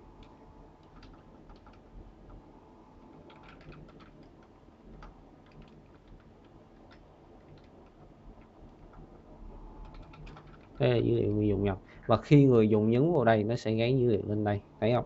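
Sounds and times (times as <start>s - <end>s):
faint keyboard typing: 0.0s - 11.8s.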